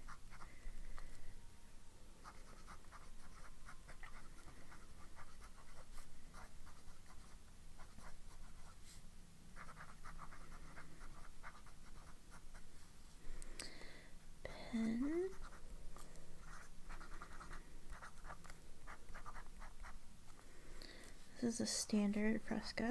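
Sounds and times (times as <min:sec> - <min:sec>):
pen nib scratching on paper: 0:02.2 - 0:08.8, 0:09.6 - 0:12.7, 0:15.1 - 0:15.6, 0:16.4 - 0:20.0.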